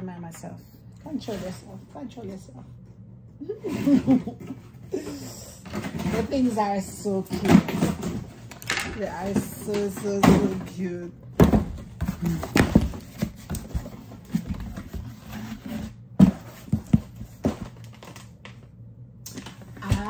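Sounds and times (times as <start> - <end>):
cardboard knocks and scrapes: 11.4 - 17.8.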